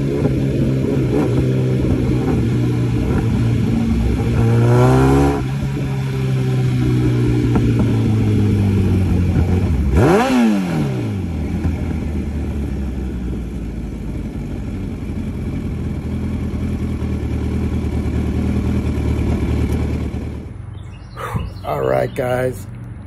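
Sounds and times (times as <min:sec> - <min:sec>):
motorcycle engine revving: 0:00.0 - 0:22.2.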